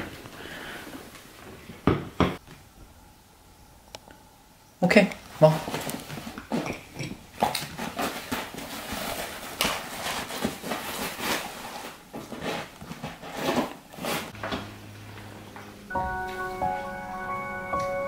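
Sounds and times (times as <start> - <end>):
steady low hum: 14.3 - 18.0.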